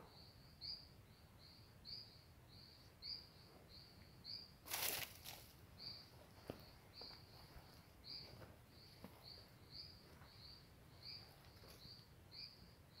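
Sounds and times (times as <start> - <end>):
footsteps on dirt trail: 4.7 - 5.6, 6.2 - 10.6.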